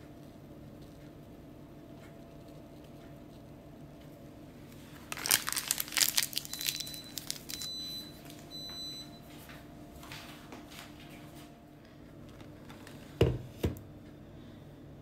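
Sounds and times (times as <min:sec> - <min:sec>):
packet crinkling and rustling: 0:04.8 - 0:08.5.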